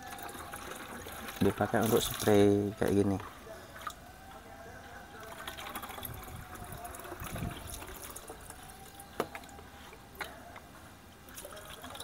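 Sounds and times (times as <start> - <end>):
water pouring into bottle: 0.0 - 3.0, 5.2 - 9.5
cup scooping water: 0.0 - 4.0, 5.2 - 10.5, 11.3 - 12.0.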